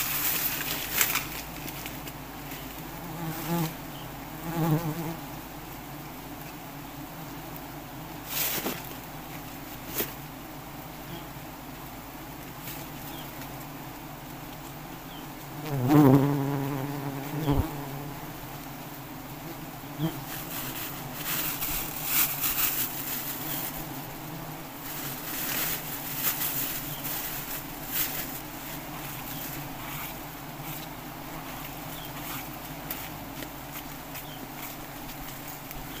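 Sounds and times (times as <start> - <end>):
scratchy rustles: 0.0 - 3.8, 20.1 - 24.0, 24.8 - 35.7
bee passing with loud buzz: 0.0 - 36.0
bees buzzing: 0.0 - 36.0.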